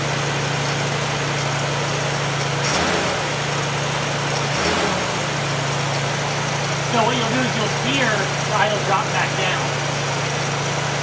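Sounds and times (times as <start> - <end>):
car engine fast idle: 0.0 - 11.0.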